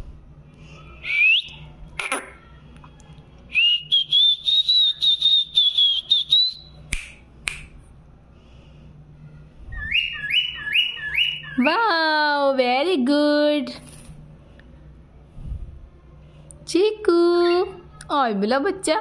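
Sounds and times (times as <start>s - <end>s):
cockatiel whistling: 3.5s - 6.7s, 9.8s - 11.7s.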